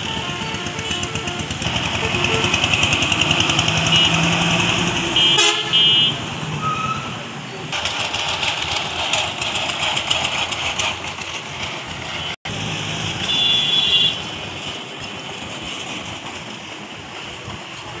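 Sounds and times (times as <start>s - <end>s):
small tractor engine chugging: 0.0s - 5.3s, 7.7s - 12.4s
truck driving by: 0.0s - 18.0s
steady high horn tone: 5.1s - 6.9s.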